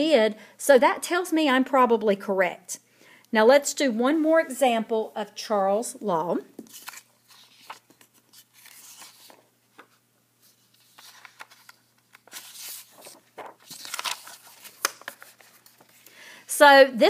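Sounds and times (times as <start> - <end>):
paper rustling: 6.6 - 16.0.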